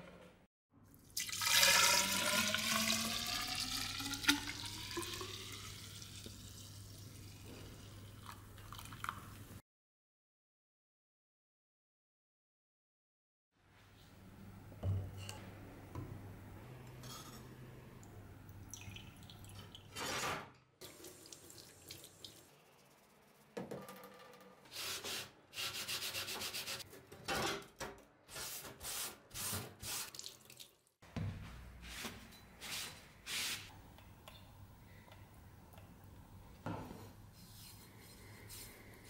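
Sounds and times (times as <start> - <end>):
running tap water: 1.2 - 9.2, 20.8 - 22.6.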